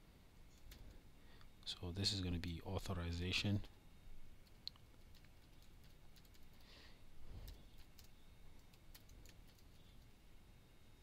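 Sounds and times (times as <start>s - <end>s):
computer keyboard typing: 4.4s - 6.7s, 7.4s - 10.1s.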